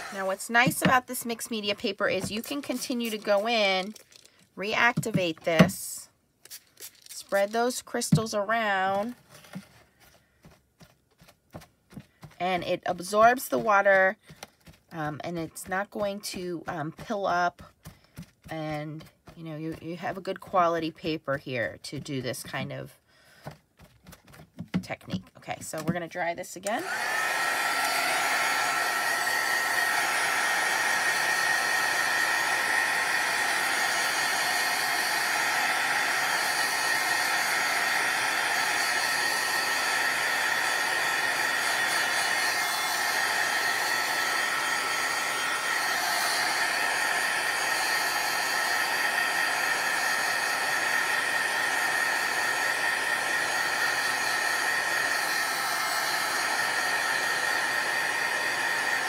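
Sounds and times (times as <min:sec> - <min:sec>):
heat tool fan hiss and whine: 0:26.8 - 0:59.0.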